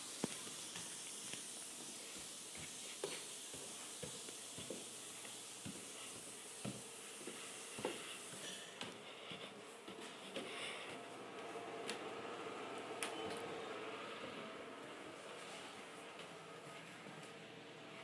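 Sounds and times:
faint hiss: 0.0s - 9.8s
footsteps on wooden stairs: 0.2s - 11.0s.

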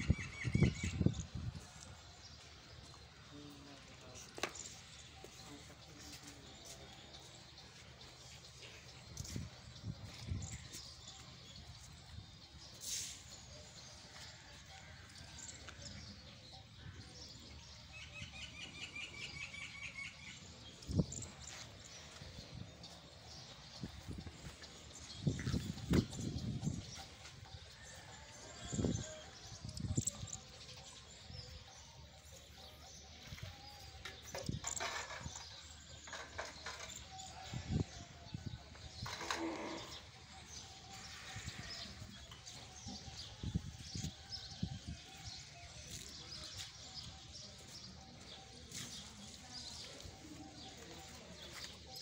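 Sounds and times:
small birds chirping: 0.0s - 14.5s, 15.4s - 52.0s.

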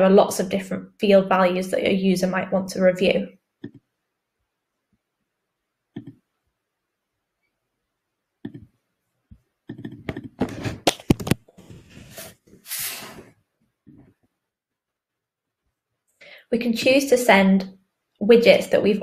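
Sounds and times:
keyboard typing: 3.6s - 3.9s, 6.0s - 6.2s, 8.4s - 8.8s, 9.6s - 11.4s
short breathy hiss: 12.1s - 13.3s.

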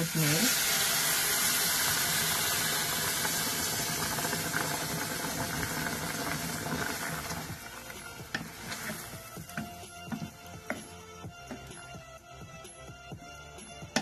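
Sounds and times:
hot pan hissing and sizzling: 0.0s - 12.0s
spatula stirring and knocking: 4.6s - 14.0s.

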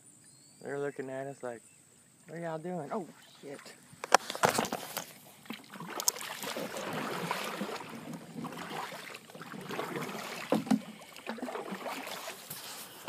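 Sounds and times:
kayak moving with swish: 2.9s - 13.0s
knocks and clatter inside kayak: 4.0s - 12.6s.

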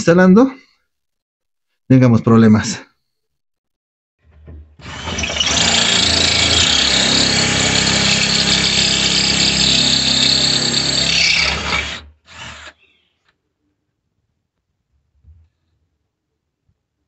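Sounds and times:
cordless drill driving a screw: 4.8s - 12.8s.

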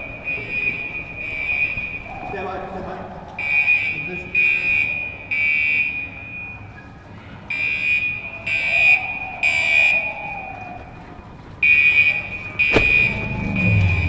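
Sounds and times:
fire alarm horn beeping: 0.0s - 2.8s, 3.4s - 10.6s.

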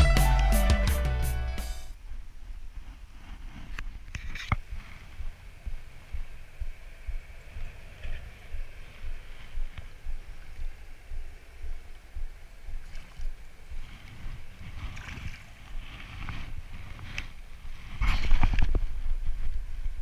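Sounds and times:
wind rumble on microphone: 1.9s - 20.0s.

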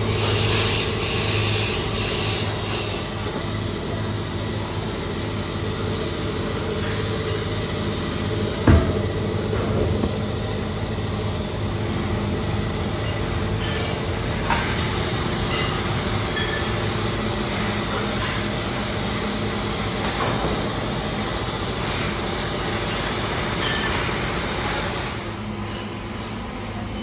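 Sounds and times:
machinery hum: 0.0s - 27.0s
steel rack rolling on rails: 12.9s - 18.5s.

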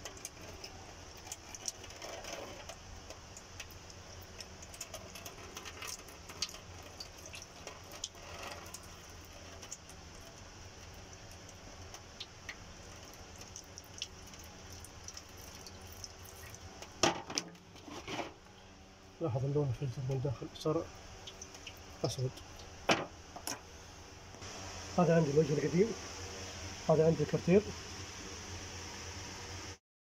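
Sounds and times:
fluid trickling and dripping: 0.0s - 17.8s, 19.7s - 23.7s
low steady hum: 0.0s - 29.8s.

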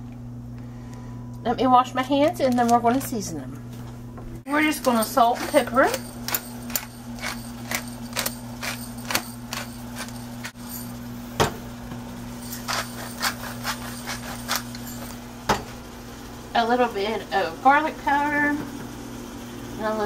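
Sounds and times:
steady low hum: 0.0s - 20.0s
grinder cracking clicks: 6.2s - 10.5s.

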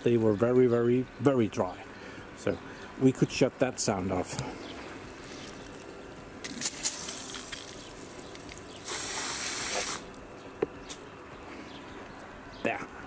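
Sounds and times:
hose spraying water: 6.4s - 10.2s.

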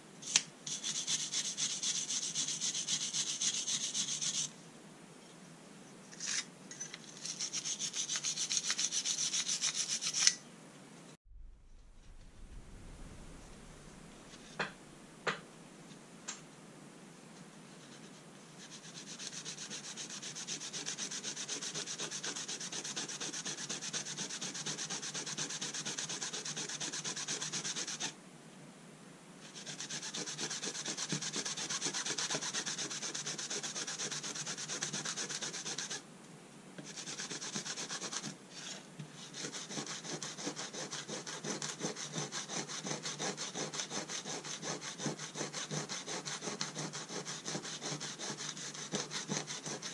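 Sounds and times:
pad scrubbing metal plate: 39.3s - 49.9s.

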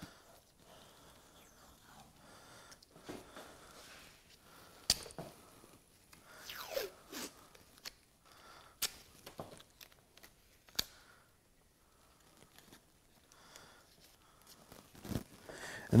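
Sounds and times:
tape snapping when torn: 8.8s - 11.0s.

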